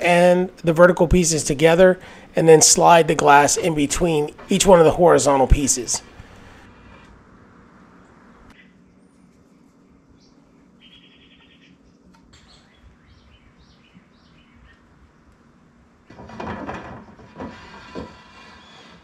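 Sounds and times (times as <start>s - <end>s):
birds chirping and trilling: 9.9s - 15.3s
wooden door parts scraping: 16.1s - 19.0s.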